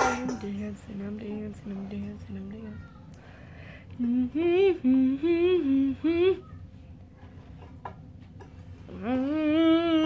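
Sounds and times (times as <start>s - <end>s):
person humming: 3.9s - 6.4s, 8.9s - 10.0s.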